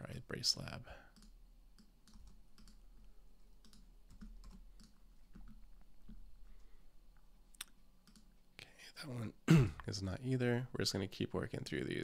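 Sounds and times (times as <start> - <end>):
faint keyboard typing: 1.0 - 8.4.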